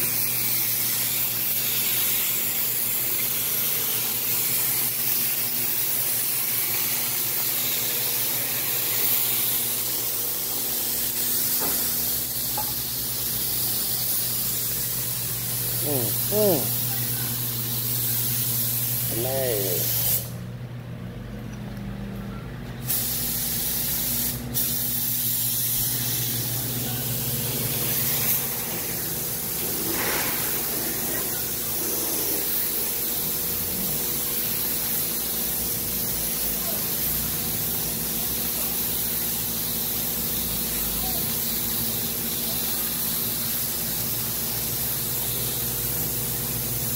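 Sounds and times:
paint spray gun hissing: 0.0 - 20.4, 22.8 - 46.9
steady low hum: 5.8 - 36.4.

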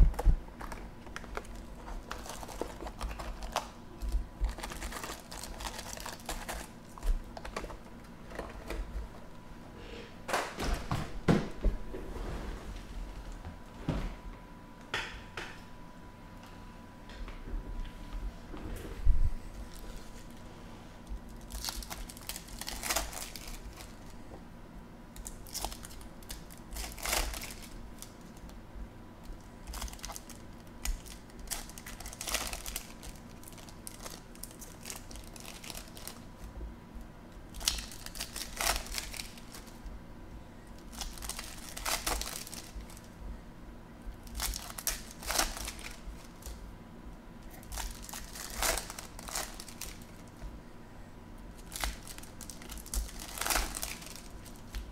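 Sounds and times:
foil wrappers crinkling and tearing: 0.0 - 9.0, 21.2 - 24.2, 25.2 - 28.6, 29.2 - 36.5, 37.4 - 39.9, 40.8 - 43.2, 44.2 - 46.6, 47.5 - 50.4, 51.5 - 54.9.

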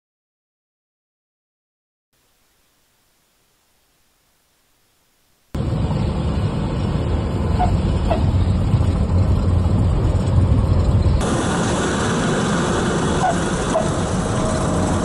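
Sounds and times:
propeller plane engine rumble: 5.5 - 15.0
wind noise: 5.6 - 15.0.

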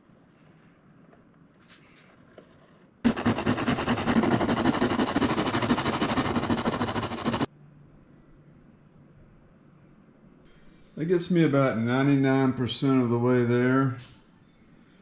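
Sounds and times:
sandpaper scraping wood: 3.1 - 7.5.

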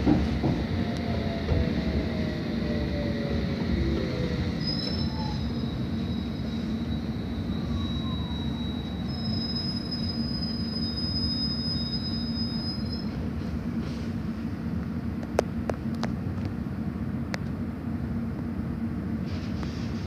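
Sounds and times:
train wheels rumbling on track: 0.0 - 20.0
high-pitched wheel squeal: 4.0 - 13.2.

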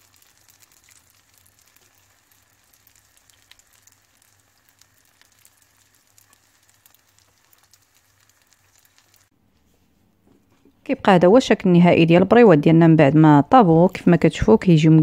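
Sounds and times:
hot oil sizzling and crackling: 0.0 - 9.3.

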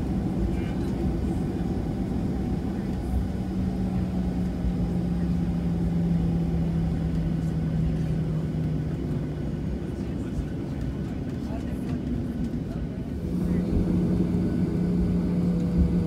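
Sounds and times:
aircraft engines rumbling: 0.0 - 16.0
droning hum: 12.4 - 16.0.

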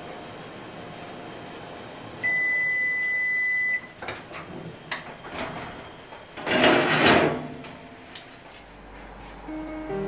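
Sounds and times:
oven electronic beep: 2.2 - 4.7
metal tray scraping on rack: 6.4 - 7.6.

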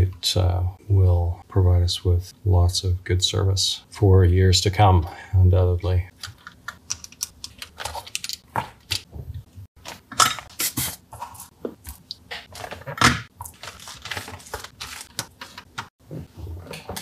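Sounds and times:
hands handling circuit board: 6.1 - 9.1.

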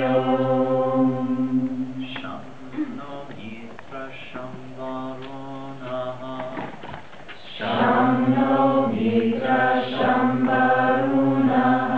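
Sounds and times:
group chanting in unison: 0.0 - 2.1, 7.5 - 11.9
man chanting: 1.4 - 6.7.

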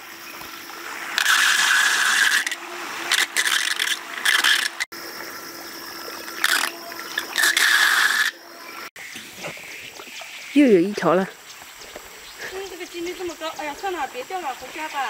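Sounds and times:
water gurgling through pipe: 0.0 - 10.1.

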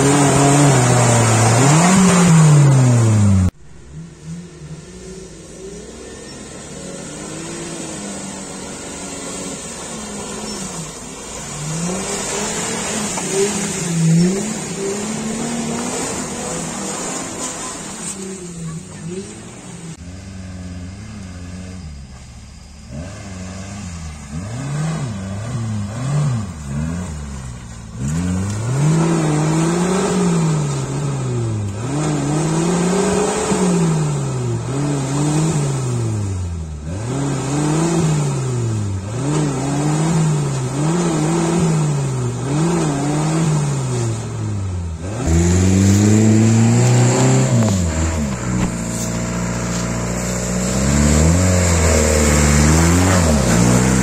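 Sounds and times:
engine revving in mud: 0.0 - 54.0
loud steady engine: 35.6 - 54.0.

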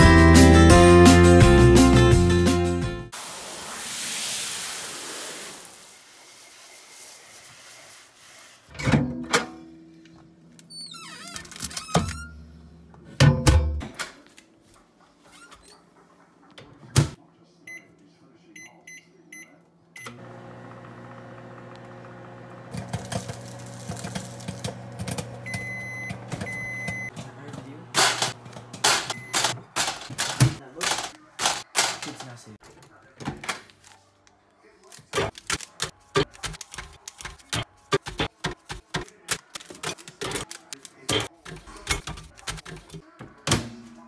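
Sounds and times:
hose spraying into plastic tub: 3.1 - 8.7
microwave oven humming: 20.0 - 27.1.

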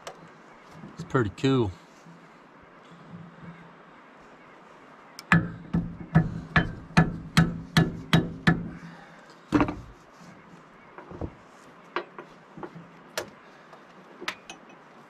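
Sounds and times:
hammer striking metal: 5.3 - 8.8.

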